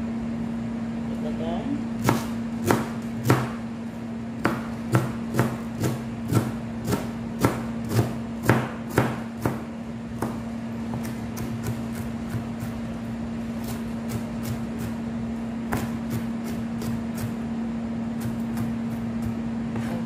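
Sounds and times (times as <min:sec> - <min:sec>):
steady low hum: 0:00.0 - 0:20.0
knife chopping cabbage on board: 0:02.0 - 0:03.6, 0:04.4 - 0:12.9, 0:13.5 - 0:17.5, 0:18.1 - 0:20.0.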